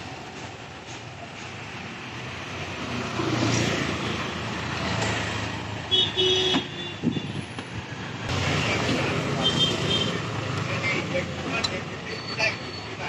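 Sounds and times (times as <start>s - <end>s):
street traffic: 0.0s - 13.0s
vehicle horn: 5.9s - 7.4s.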